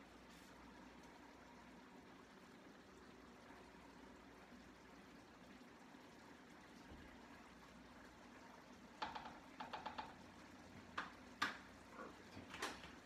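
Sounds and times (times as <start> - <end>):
faint steady hum: 0.0 - 13.0
utensil clacking against a pan: 9.0 - 10.2.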